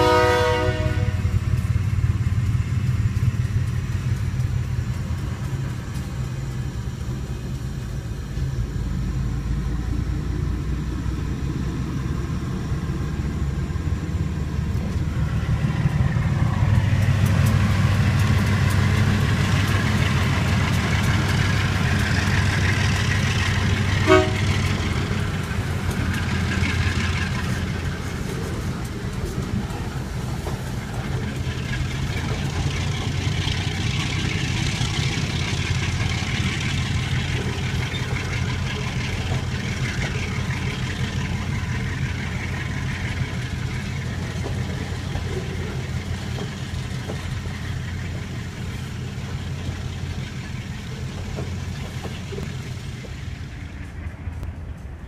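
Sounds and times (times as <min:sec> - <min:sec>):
short sharp horn toot: 0:00.0 - 0:01.2, 0:24.0 - 0:24.5
freight cars rolling and clattering: 0:00.0 - 0:09.2, 0:09.8 - 0:55.0
locomotive engine rumbling: 0:00.0 - 0:55.0.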